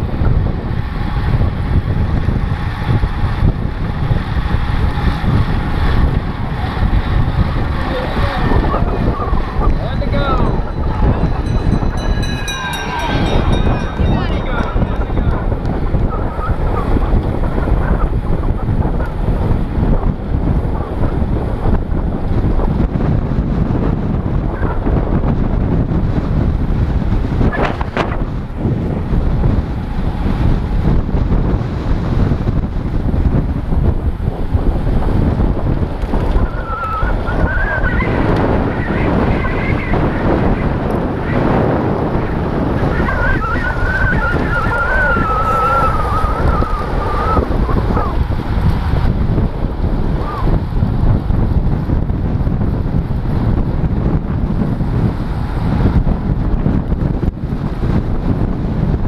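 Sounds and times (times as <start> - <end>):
wind buffeting microphone: 0.0 - 59.0
thin wavering whistle: 10.8 - 15.5, 36.5 - 38.2, 43.0 - 47.8.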